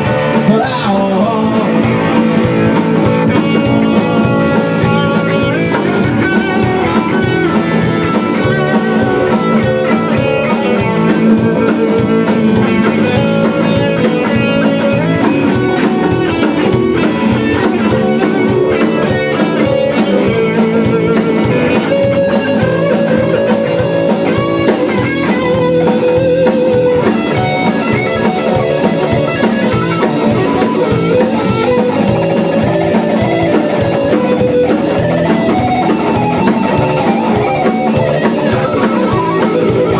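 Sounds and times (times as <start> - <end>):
drum kit: 0.0 - 39.9
electric guitars: 0.0 - 39.9.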